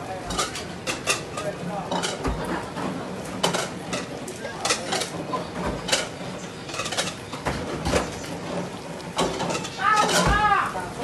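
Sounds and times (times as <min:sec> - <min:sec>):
metal ladles clanking on pots: 0:00.0 - 0:11.0.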